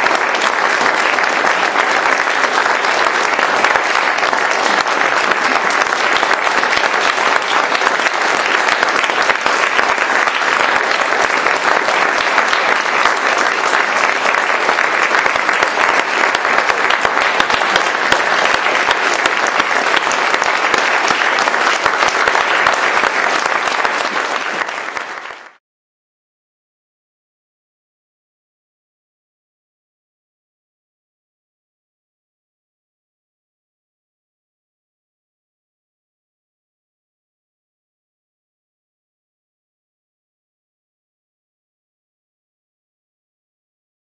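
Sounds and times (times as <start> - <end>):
audience applauding: 0.0 - 25.6.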